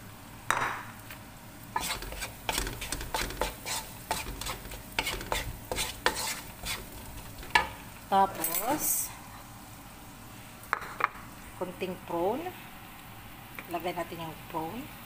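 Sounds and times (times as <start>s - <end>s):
food sizzling in hot oil: 1.4s - 11.6s
wooden spatula scraping a wok: 1.7s - 8.0s.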